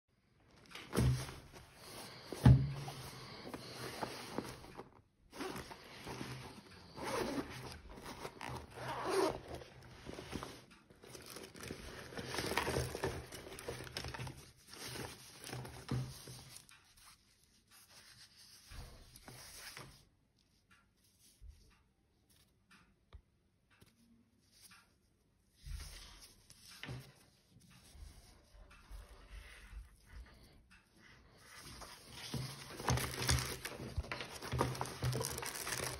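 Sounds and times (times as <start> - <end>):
fabric rustling and handling: 0.2 - 21.4, 24.4 - 35.9
zipper being pulled open: 3.4 - 10.6.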